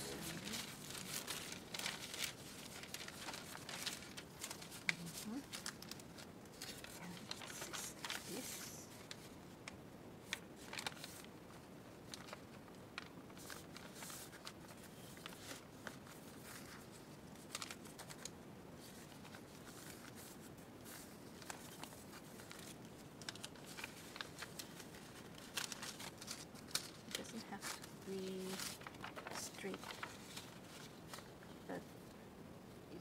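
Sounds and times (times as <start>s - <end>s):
paper sheets rustling: 0.0s - 31.7s.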